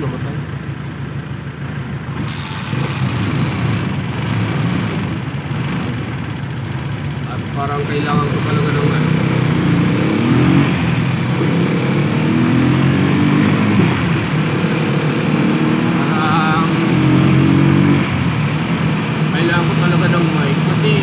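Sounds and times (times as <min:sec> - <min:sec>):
small vehicle engine accelerating: 0:01.9 - 0:21.0.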